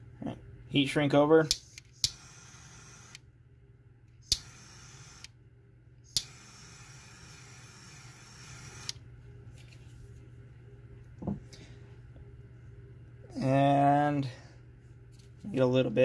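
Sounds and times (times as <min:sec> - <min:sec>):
torch lighter ignition click: 0:01.5 - 0:02.3, 0:04.2 - 0:05.4, 0:06.1 - 0:06.4.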